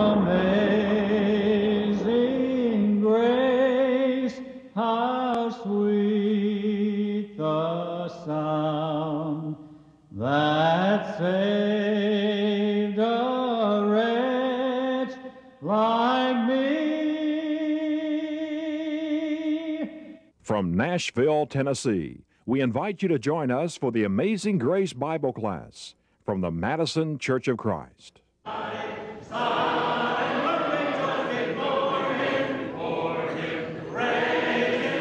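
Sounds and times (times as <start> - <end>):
voices singing a hymn in harmony: 0.0 - 9.6, 28.5 - 35.0.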